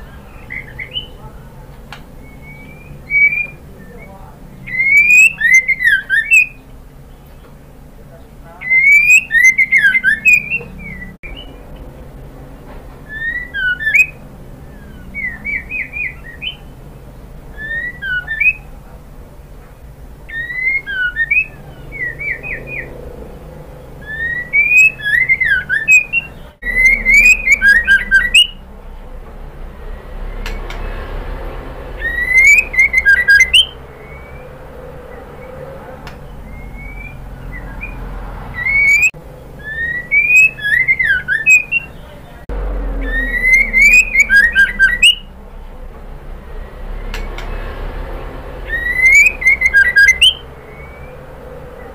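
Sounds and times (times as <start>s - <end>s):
bird whistling calls: 0.0s - 7.5s, 8.6s - 11.8s, 13.0s - 16.9s, 17.5s - 18.8s, 20.2s - 23.2s, 23.8s - 28.7s, 32.0s - 45.3s, 48.7s - 51.9s.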